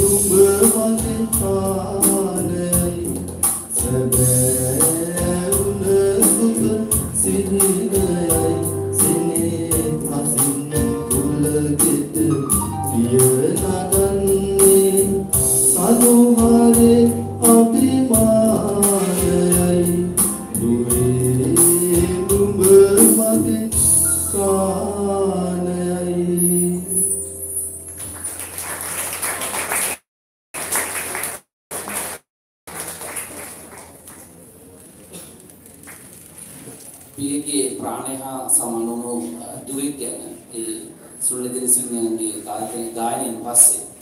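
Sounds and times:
steady percussion beat: 0.0s - 24.2s
person singing live: 0.0s - 27.2s
low background noise: 32.7s - 44.0s.

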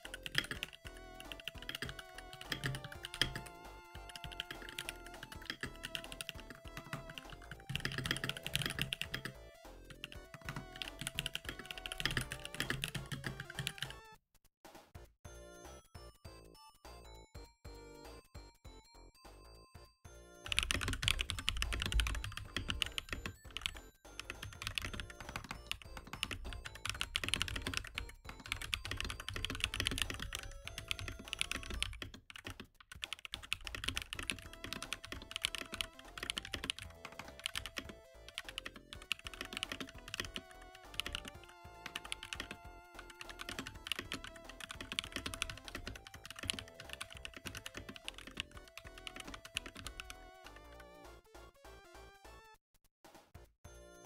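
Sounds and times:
mechanical keyboard typing: 0.0s - 14.0s, 20.4s - 50.8s
video game music: 0.0s - 54.0s.

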